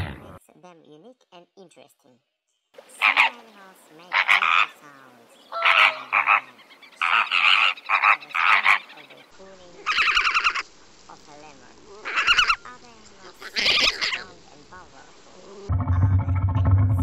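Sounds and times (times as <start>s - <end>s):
fainter flock calls: 2.8s - 15.7s
flamingos honking: 5.5s - 15.7s.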